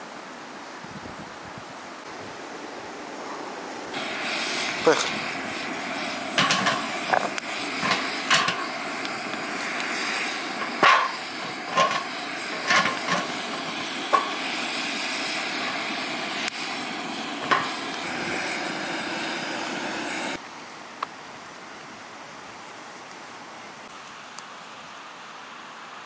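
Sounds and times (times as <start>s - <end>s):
steady hiss: 0.0s - 26.0s
wood clunking on metal lid: 6.4s - 8.7s, 10.6s - 13.4s.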